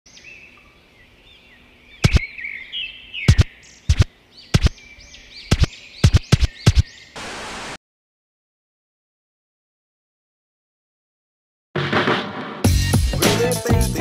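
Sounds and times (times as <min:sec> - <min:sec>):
birds chirping and twittering: 0:00.1 - 0:07.2.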